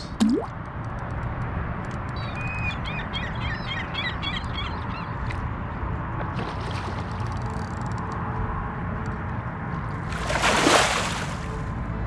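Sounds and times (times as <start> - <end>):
birds chirping: 2.2 - 5.3
fish splashing in water: 10.1 - 11.5.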